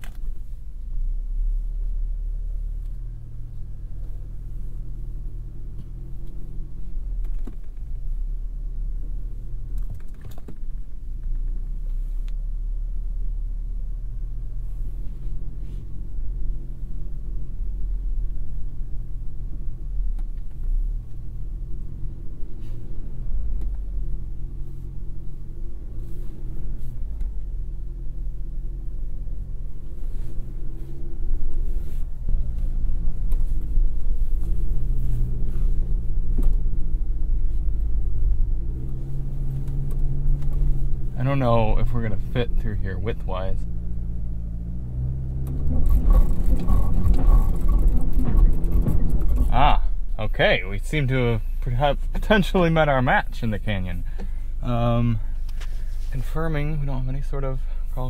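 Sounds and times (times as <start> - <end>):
truck engine rumbling: 0.0 - 58.0
truck knocking over rough ground: 45.5 - 49.9.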